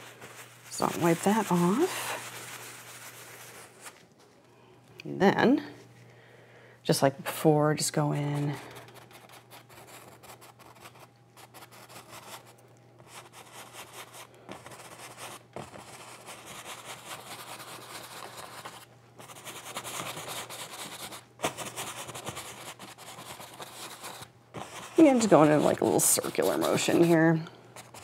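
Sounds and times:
paintbrush scrubbing canvas: 0.0s - 4.0s, 13.0s - 28.0s.

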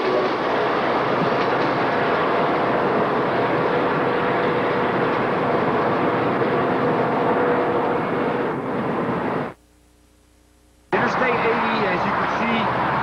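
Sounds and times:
train wheels rolling on rails: 0.0s - 9.6s.

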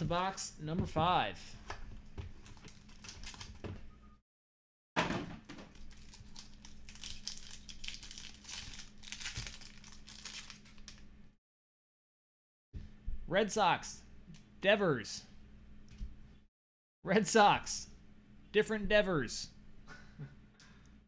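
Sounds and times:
plastic wrapping crinkling: 2.4s - 3.6s, 5.7s - 11.1s.

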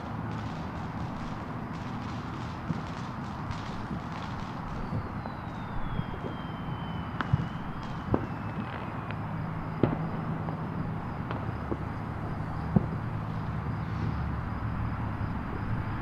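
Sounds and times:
distant firework pops: 0.0s - 13.0s
steady background rumble: 0.0s - 16.0s
faint falling whistle: 4.3s - 10.0s.

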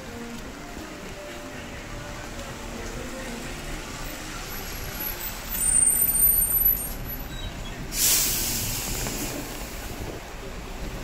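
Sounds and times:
traffic passing on wet street: 0.0s - 11.0s
rain hiss: 7.9s - 10.2s.

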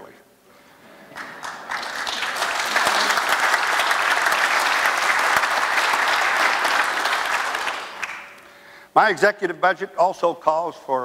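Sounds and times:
large audience applauding: 1.1s - 8.5s.

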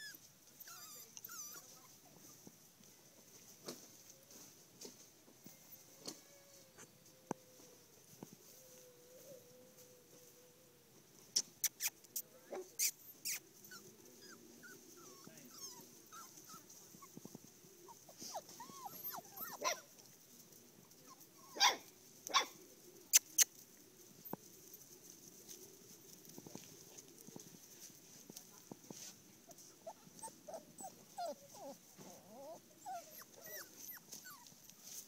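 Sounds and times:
puppies whining: 0.0s - 2.0s, 12.8s - 17.2s, 17.8s - 19.9s, 29.8s - 34.6s
puppies yipping and barking: 17.9s - 19.9s, 29.8s - 34.5s.

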